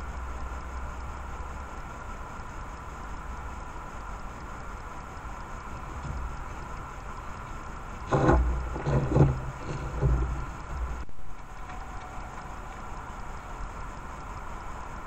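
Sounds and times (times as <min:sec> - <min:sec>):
camera hiss and hum: 0:00.0 - 0:15.0
deer thumping and rustling: 0:08.0 - 0:11.0.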